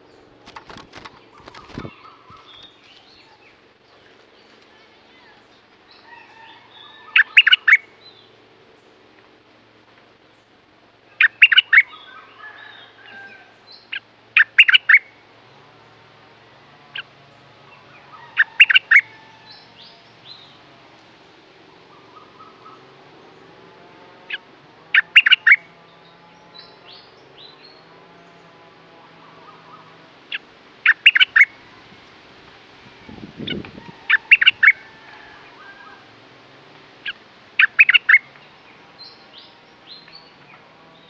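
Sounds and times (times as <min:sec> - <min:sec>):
bird singing short phrases: 0:13.8 - 0:15.0, 0:25.0 - 0:28.5.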